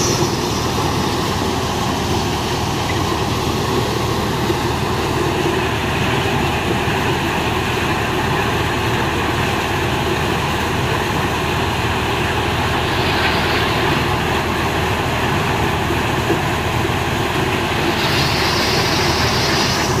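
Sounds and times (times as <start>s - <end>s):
hiss of shelling corn: 0.0s - 1.7s, 12.7s - 14.2s, 17.7s - 20.0s
thresher drum whirring: 0.0s - 20.0s
tractor diesel engine under load: 0.0s - 20.0s.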